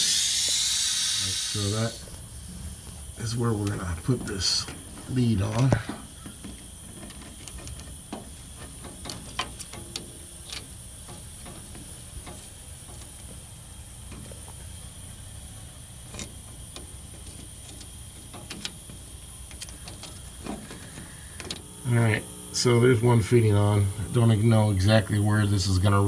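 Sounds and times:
steady low hiss and hum: 0.0s - 26.0s.

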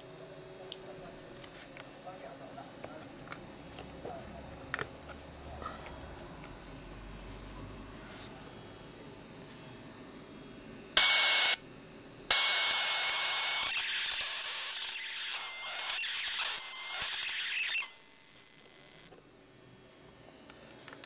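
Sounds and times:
harsh electrical sparking buzz: 11.0s - 11.6s, 12.3s - 19.1s.

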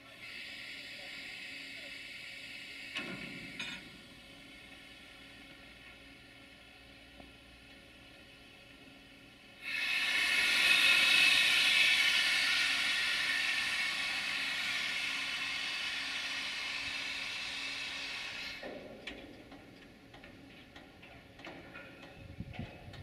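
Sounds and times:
air brake hissing: 9.6s - 18.7s.

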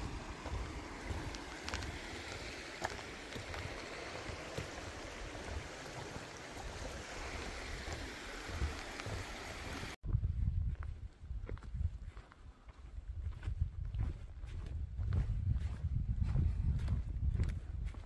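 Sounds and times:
creek water rushing and gurgling: 0.0s - 10.0s
wind buffeting microphone: 0.0s - 18.0s.

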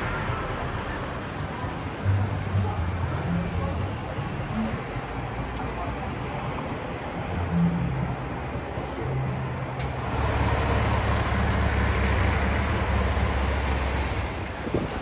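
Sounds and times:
vehicle passing with engine rumble: 9.0s - 15.0s.

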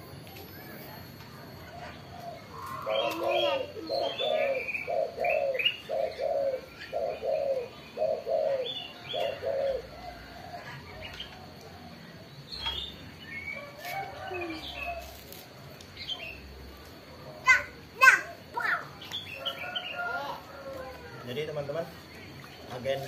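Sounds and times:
small birds chirping: 0.0s - 23.0s
dove cooing: 1.5s - 12.3s.

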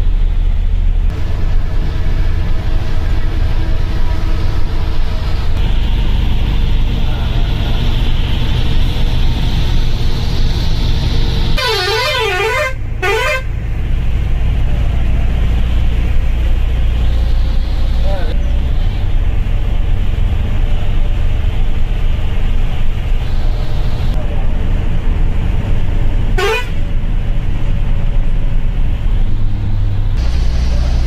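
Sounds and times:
bus engine and tyres droning: 0.0s - 31.0s
wavering horn: 11.6s - 13.5s, 26.4s - 26.8s.

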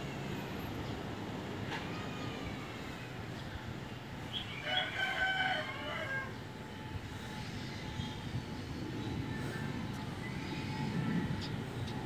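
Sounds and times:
distant jet engine rumble: 5.6s - 12.0s.

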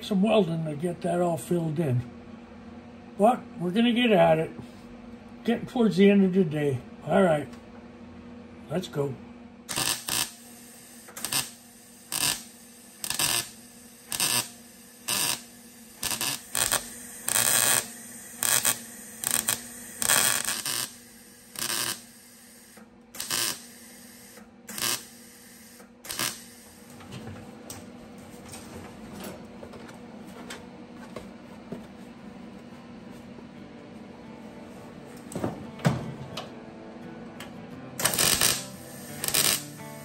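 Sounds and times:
steady low hum: 0.0s - 40.0s
short welding bursts: 9.7s - 26.8s, 38.0s - 40.0s.

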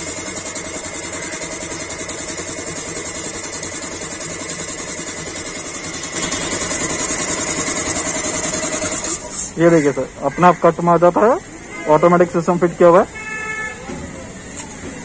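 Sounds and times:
air compressor pulsing: 0.0s - 10.0s.

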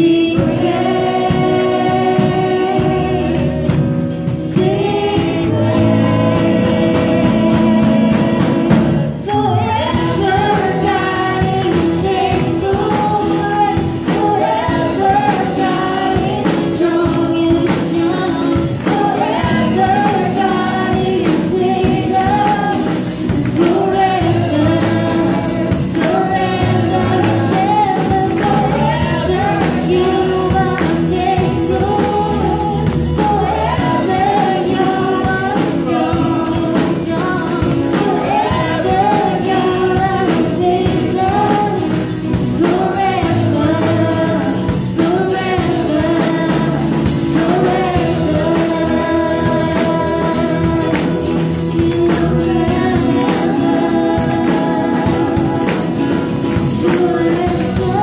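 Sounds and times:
woman singing: 0.0s - 58.0s
worship band playing: 0.0s - 58.0s.

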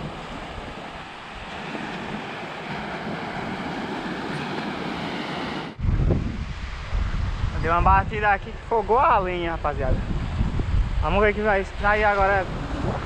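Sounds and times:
small waves breaking on shore: 0.0s - 7.5s.

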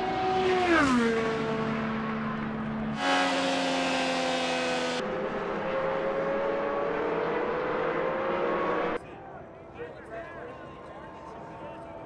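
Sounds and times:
race car engine at speed: 0.0s - 9.0s.

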